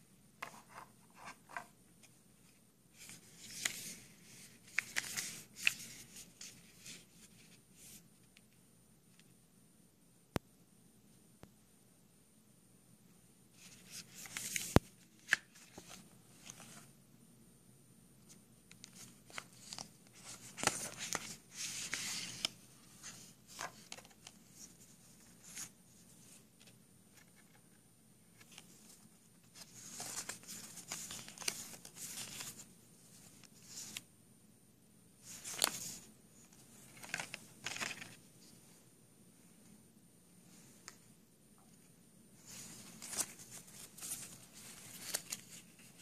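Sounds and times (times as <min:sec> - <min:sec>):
paper rustling and flicking: 0:36.9 - 0:38.2.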